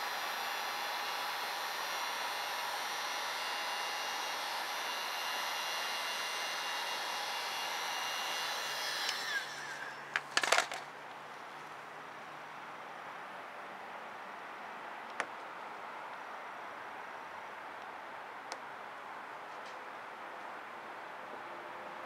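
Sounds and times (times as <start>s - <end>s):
heat gun blowing hiss: 0.0s - 10.0s
sharp clicks and knocks: 10.1s - 10.9s.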